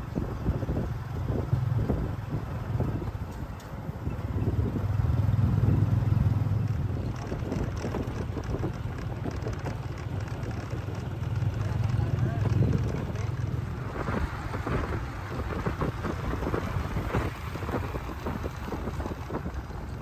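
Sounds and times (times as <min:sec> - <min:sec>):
motorbike engine and road rumble: 0:00.0 - 0:20.0
wind rushing over microphone: 0:00.0 - 0:20.0.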